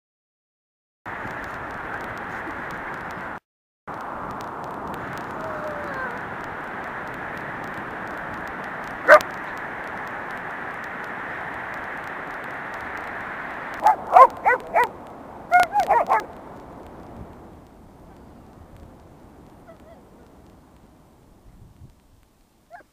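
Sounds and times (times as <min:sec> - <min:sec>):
surf: 0:01.1 - 0:22.9
wind: 0:01.1 - 0:22.9
dogs barking: 0:09.0 - 0:09.4, 0:13.8 - 0:16.3.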